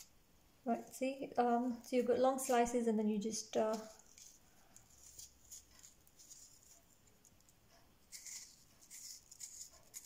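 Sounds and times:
knife scraping squash: 0:08.1 - 0:10.0.

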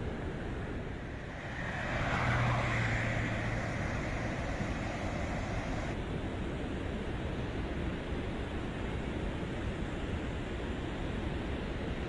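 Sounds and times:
rushing muddy water: 0:01.0 - 0:06.0
vehicle passing: 0:01.0 - 0:06.0.

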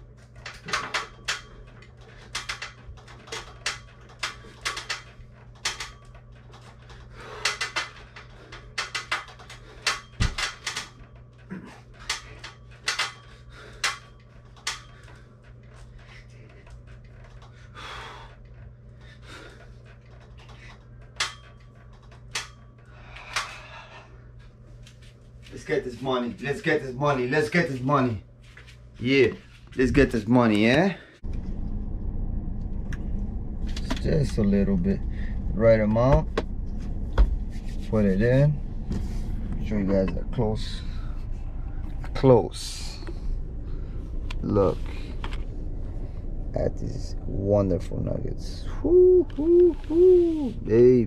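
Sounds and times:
steady low hum: 0:00.0 - 0:51.0
metal tower clicking and knocking: 0:00.2 - 0:17.6, 0:19.6 - 0:23.7
man breathing hard: 0:06.8 - 0:10.2, 0:11.5 - 0:14.2, 0:14.8 - 0:20.9, 0:22.8 - 0:24.4.

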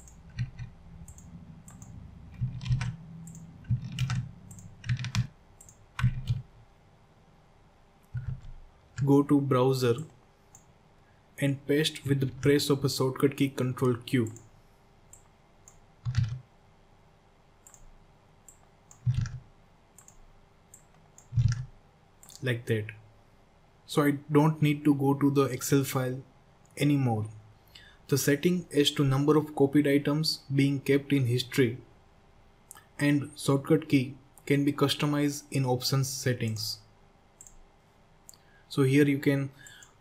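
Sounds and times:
computer keyboard keys clicking: 0:00.0 - 0:06.4, 0:08.1 - 0:09.1, 0:15.2 - 0:16.4, 0:18.5 - 0:19.4, 0:20.0 - 0:22.4.

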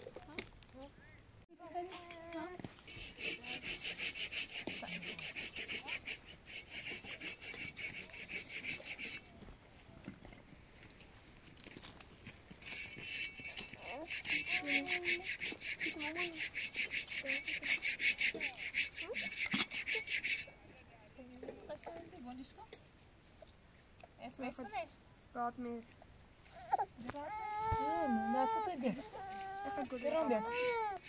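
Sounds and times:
child's voice: 0:01.6 - 0:02.6, 0:14.5 - 0:15.2, 0:26.7 - 0:31.0.

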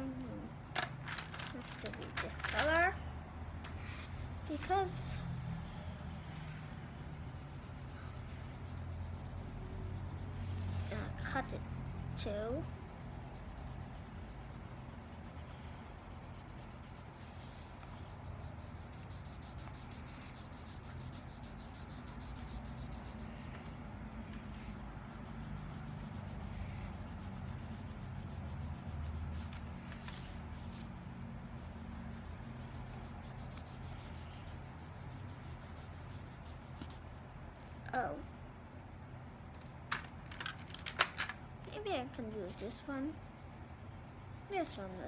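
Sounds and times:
low steady hum: 0:00.0 - 0:45.0
marker scribbling on paper: 0:04.5 - 0:37.1, 0:42.4 - 0:45.0.

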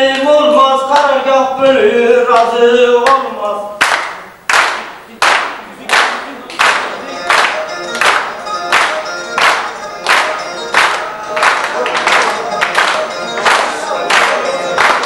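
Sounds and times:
men singing: 0:00.0 - 0:03.7
group clapping in unison: 0:00.1 - 0:00.3, 0:03.0 - 0:03.2, 0:03.8 - 0:15.0.

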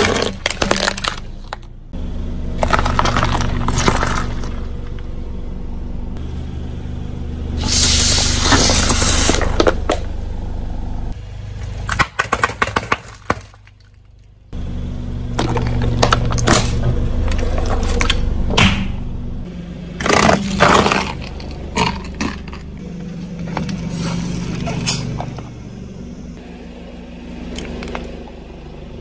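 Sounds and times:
tyre crushing crunchy objects: 0:00.0 - 0:01.7, 0:02.5 - 0:05.0, 0:11.4 - 0:14.2, 0:15.3 - 0:18.3, 0:20.0 - 0:25.3
car engine hum: 0:00.0 - 0:29.0.

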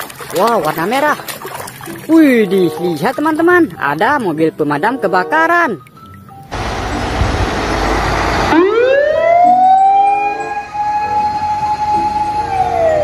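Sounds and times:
loud rushing noise: 0:06.6 - 0:08.8
fire engine siren wailing: 0:06.6 - 0:13.0.

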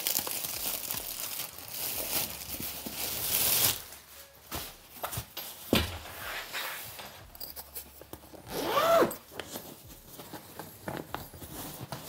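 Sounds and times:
rustling and scraping of parts: 0:01.9 - 0:12.0
zipper pulled: 0:08.4 - 0:09.6.

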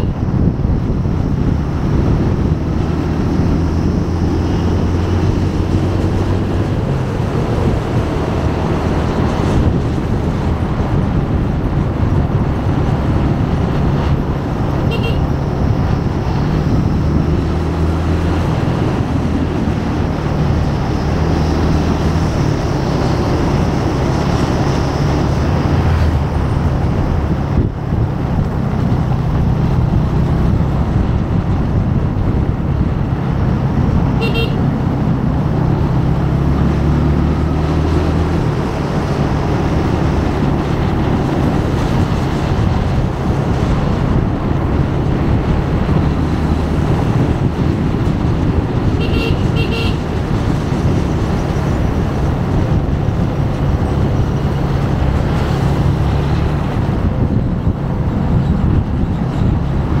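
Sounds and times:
wind and road noise: 0:00.0 - 1:00.0
vehicle horn toots: 0:14.9 - 0:15.3, 0:34.2 - 0:34.6, 0:49.0 - 0:50.0.

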